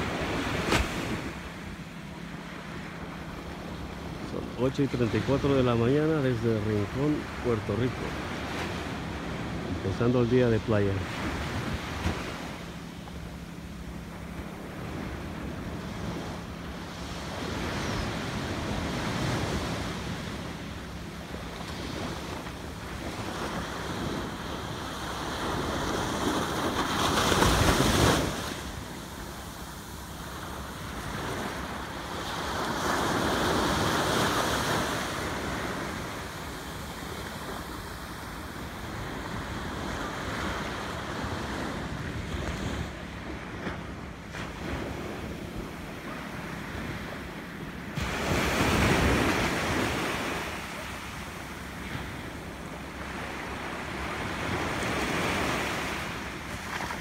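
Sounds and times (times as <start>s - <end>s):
surf washing onto beach: 0.0s - 1.6s, 17.0s - 57.0s.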